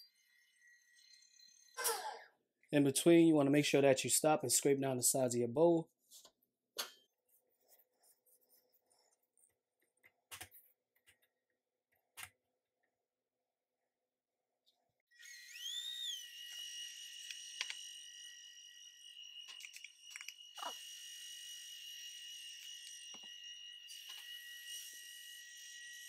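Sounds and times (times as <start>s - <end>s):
stand mixer motor whine: 15.1s - 19.3s.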